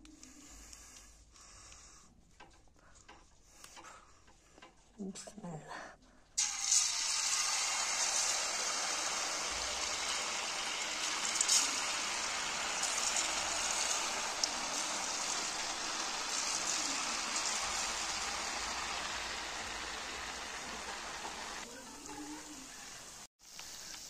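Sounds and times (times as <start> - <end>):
batter sizzling in hot oil: 6.4 - 24.0.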